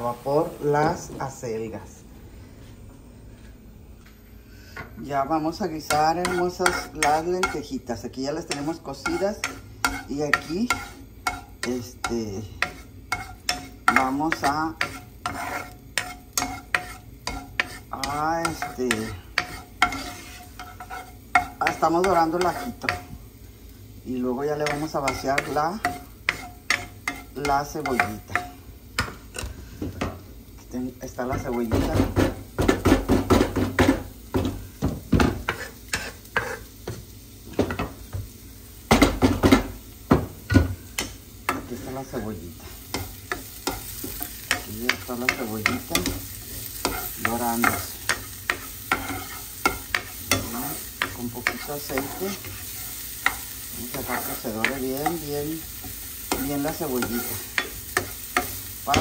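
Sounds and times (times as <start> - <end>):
garlic sizzling in oil: 5.0 - 59.0
wooden spatula scraping frying pan: 5.8 - 7.8, 8.4 - 23.2, 24.2 - 30.0, 31.2 - 37.0, 41.0 - 59.0.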